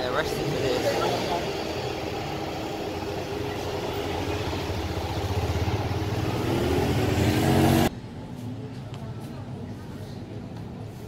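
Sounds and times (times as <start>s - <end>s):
motor scooter and motorcycle engines: 0.0s - 7.9s.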